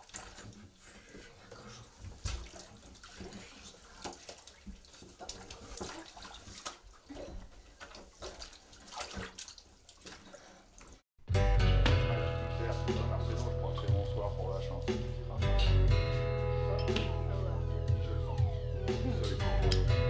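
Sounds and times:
water splashing in a bathtub: 0.0 - 11.1.

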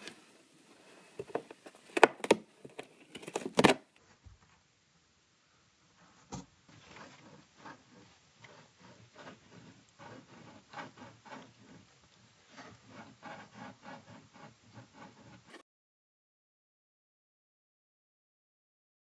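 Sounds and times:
cat claws scratching cardboard: 0.8 - 3.8, 6.7 - 15.6.

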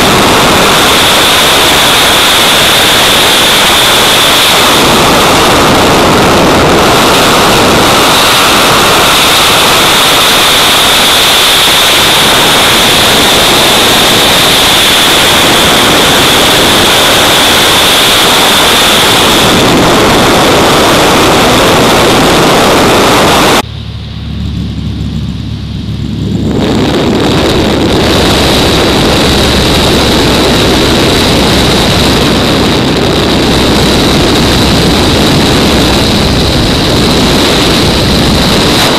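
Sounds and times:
harsh rushing hiss: 0.0 - 23.6
propeller plane engine drone: 0.0 - 38.9.

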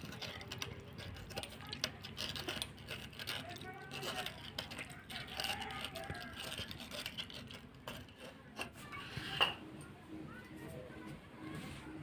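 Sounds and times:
wet squishing of mashed tomatoes: 0.0 - 8.8.

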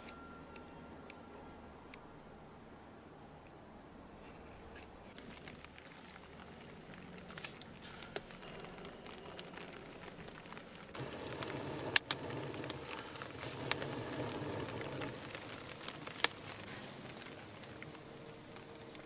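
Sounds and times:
burning wood popping and crackling: 5.2 - 19.0
fire rushing: 5.6 - 19.0.

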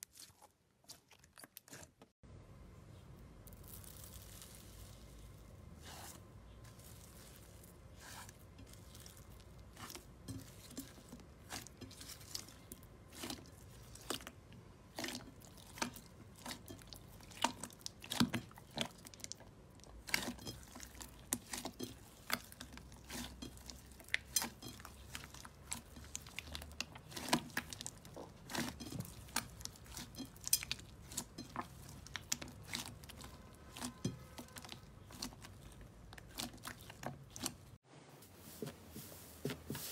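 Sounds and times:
slime crackling and popping: 3.4 - 5.0.

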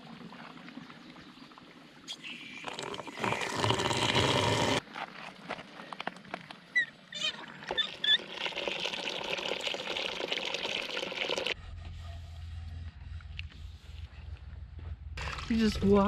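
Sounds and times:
water pouring into plastic basin: 2.6 - 4.8, 8.1 - 11.6.

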